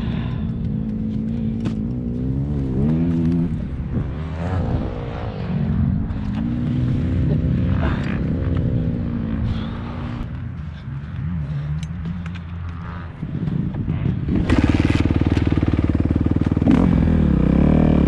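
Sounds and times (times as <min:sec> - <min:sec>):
motocross bike engine revving: 0:12.6 - 0:18.0.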